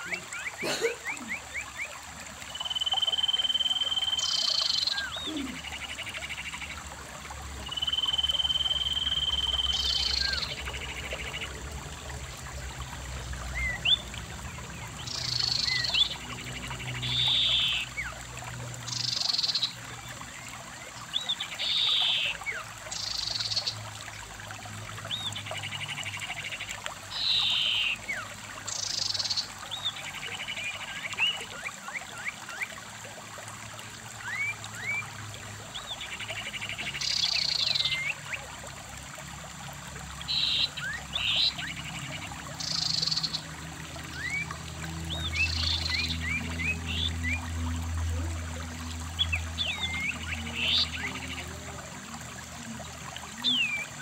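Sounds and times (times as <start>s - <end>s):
stream flowing over rocks: 0.0s - 54.0s
long steady bird whistles: 2.5s - 6.6s, 7.7s - 11.3s, 27.1s - 29.5s.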